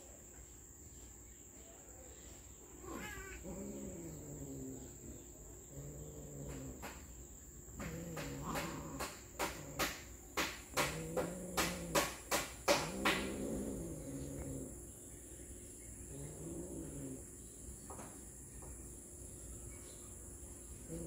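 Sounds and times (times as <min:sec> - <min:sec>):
cats yowling: 0:02.7 - 0:05.1.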